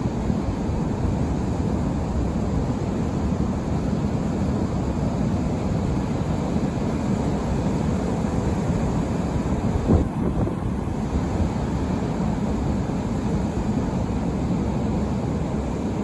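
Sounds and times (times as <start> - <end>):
surf washing over rocks: 0.0 - 16.0
wind on microphone: 8.8 - 12.2.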